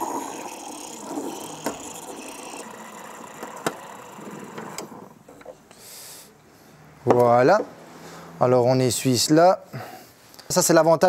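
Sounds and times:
steam wand hissing into milk: 0.0 - 4.1.

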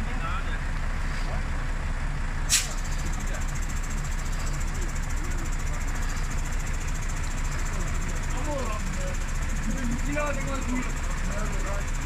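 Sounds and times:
diesel engine running: 0.0 - 12.0
short sharp hiss: 2.5 - 3.0.

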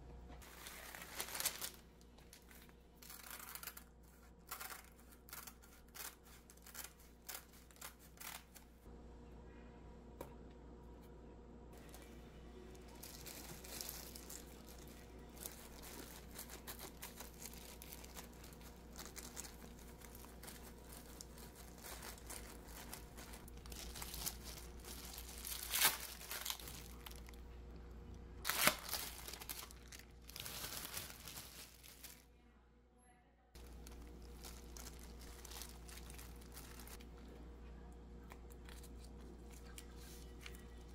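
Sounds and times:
plastic gloves crinkling: 0.4 - 8.9, 11.8 - 32.3, 33.6 - 37.1.

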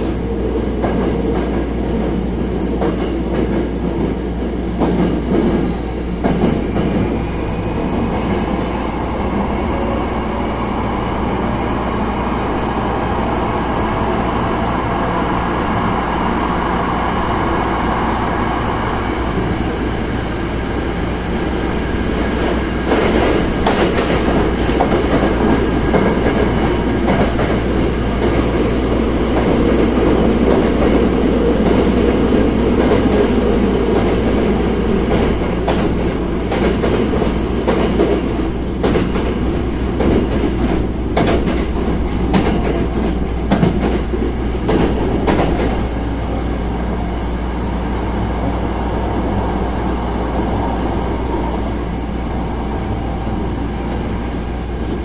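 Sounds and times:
train wheels rumbling on rails: 0.0 - 55.0
track clacks: 21.7 - 46.0.

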